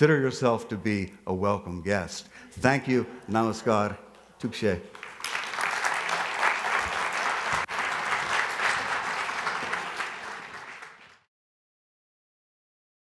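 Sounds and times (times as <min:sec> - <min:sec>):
audience applauding: 0:04.9 - 0:11.3.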